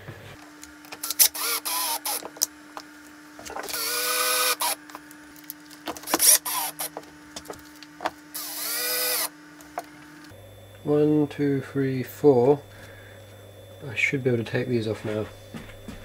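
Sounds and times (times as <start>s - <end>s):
cordless drill driving screws: 0.9s - 2.5s, 3.5s - 4.8s, 5.9s - 7.1s, 8.3s - 9.4s
screws and washers clicking: 0.9s - 2.5s, 5.4s - 7.6s.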